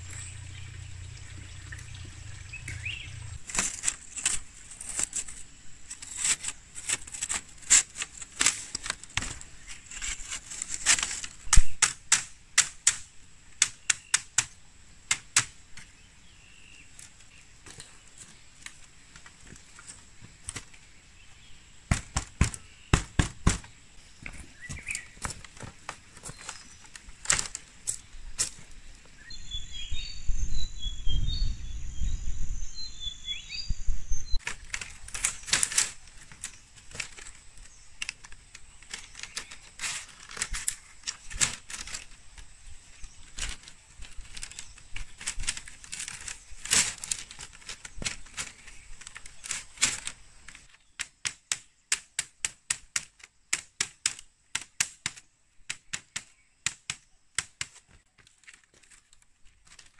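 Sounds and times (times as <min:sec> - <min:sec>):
wind rumbling: 0:00.0 - 0:03.8, 0:29.3 - 0:34.4
small birds chirping: 0:00.0 - 0:10.7, 0:11.3 - 0:59.9
tool tapping on bamboo: 0:10.9 - 0:15.9, 0:21.9 - 0:27.6, 0:50.9 - 0:58.3.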